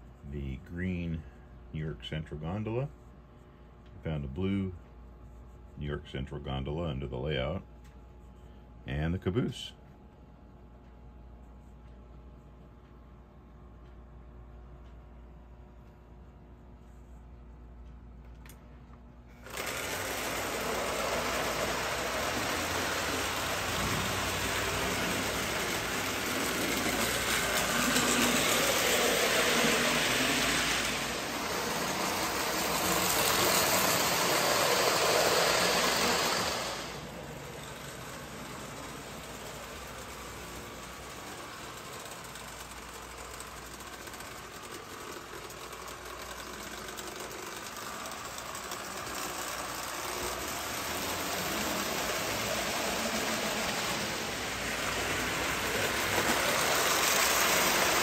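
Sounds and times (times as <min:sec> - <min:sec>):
toy train motor whir and rattle: 0:19.3 - 0:58.0.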